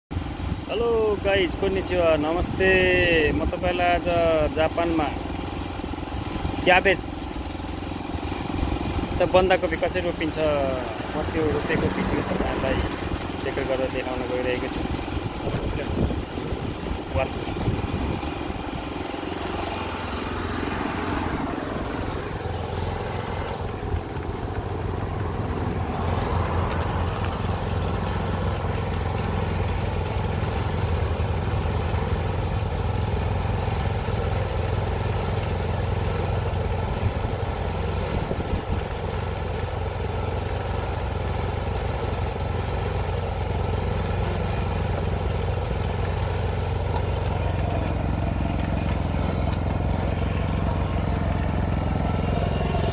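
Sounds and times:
small engine humming: 0.2s - 52.9s.

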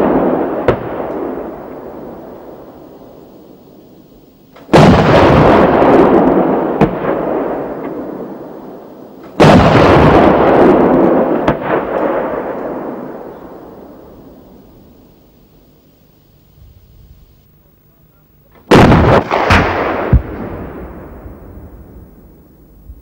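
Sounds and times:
cannon shot with rolling echo: 0.0s - 15.1s, 18.6s - 22.6s.

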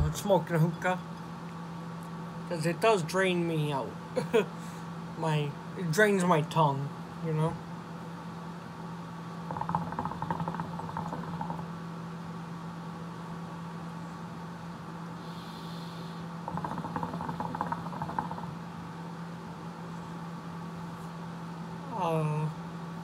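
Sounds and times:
steady low hum: 0.0s - 23.0s
hookah water bubbling: 9.4s - 11.8s, 16.4s - 18.7s.

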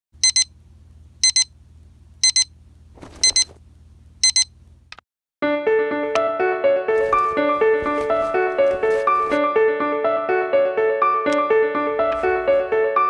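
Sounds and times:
alarm clock beeping: 0.2s - 0.5s, 1.2s - 1.5s, 2.2s - 2.5s, 3.2s - 3.6s, 4.2s - 4.5s
keyboard music: 5.4s - 13.0s.

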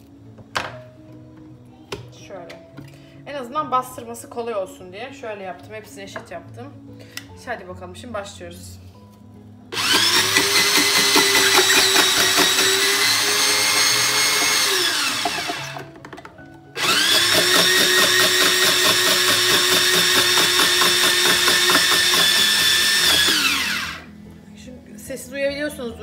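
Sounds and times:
electric slicer motor whining: 9.8s - 15.9s, 16.8s - 24.1s.

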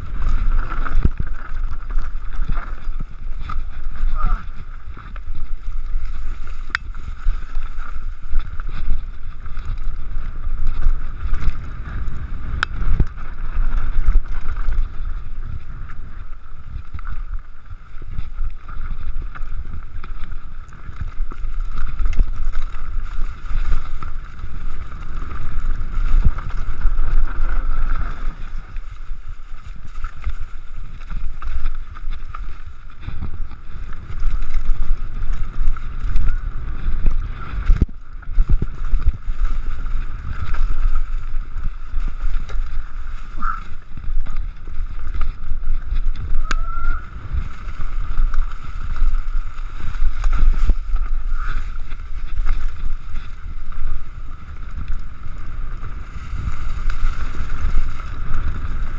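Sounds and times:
wind buffeting microphone: 0.0s - 58.9s
bike clattering over rocks: 18.0s - 53.3s.

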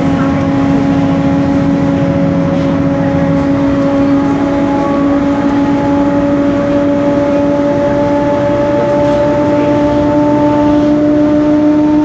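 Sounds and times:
bus differential whining: 0.0s - 12.0s
drivetrain and road rumble: 0.0s - 12.0s.

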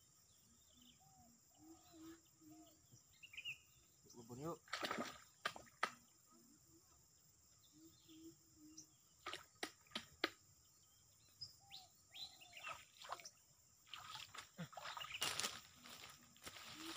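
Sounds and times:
faint bird chirps: 0.0s - 4.6s, 5.2s - 9.6s, 10.6s - 16.9s
rustling of grass and plants: 13.9s - 16.9s.

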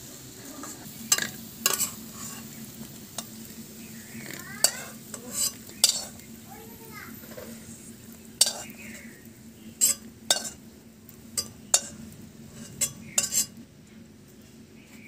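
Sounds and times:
metal spatula scraping a wok: 0.6s - 3.5s, 4.1s - 6.3s, 8.4s - 9.1s, 9.7s - 10.6s, 11.4s - 13.6s.

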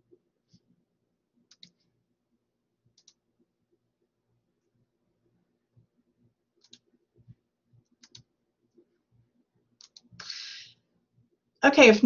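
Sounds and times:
computer mouse clicks: 1.5s - 1.8s, 2.9s - 3.2s, 6.6s - 6.9s, 7.8s - 8.3s, 9.8s - 10.2s
short hiss: 10.2s - 10.7s.

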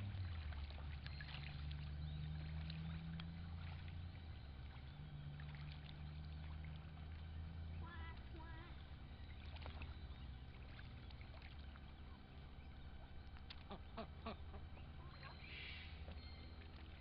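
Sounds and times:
faint water sounds: 0.0s - 17.0s
steady low rumble: 0.0s - 17.0s
duck calls: 13.6s - 14.8s.

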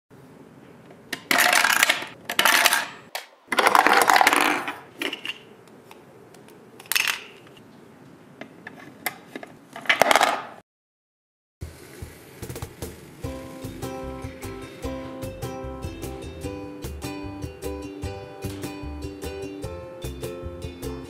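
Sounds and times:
toy cans clattering and rolling: 1.2s - 5.5s, 6.8s - 7.4s, 9.8s - 10.6s.

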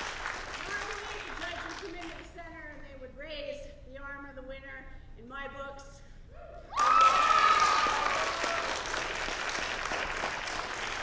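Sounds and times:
person whooping: 6.3s - 8.7s
audience applause and cheering: 6.7s - 11.0s.

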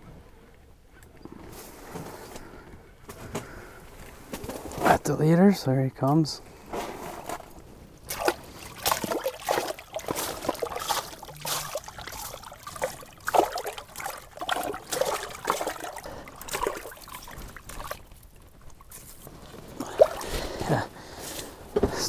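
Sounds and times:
water dripping: 8.0s - 20.8s
water splashing: 8.0s - 20.8s.

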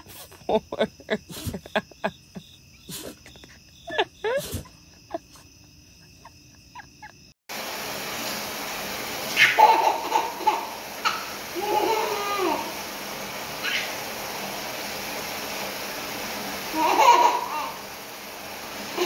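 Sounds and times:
night insects trilling: 0.0s - 7.4s
water running from bathtub tap: 7.5s - 19.0s.

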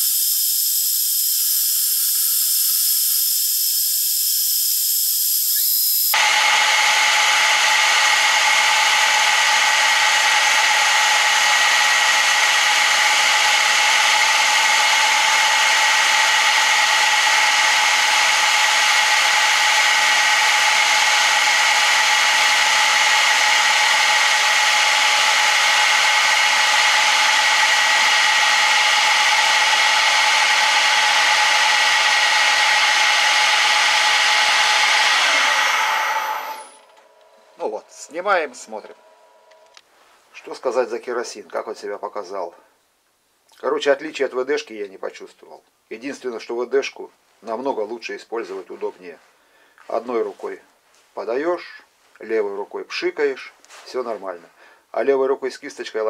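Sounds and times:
metal cutting hiss: 0.0s - 6.2s
lathe machine whine: 0.0s - 39.8s.

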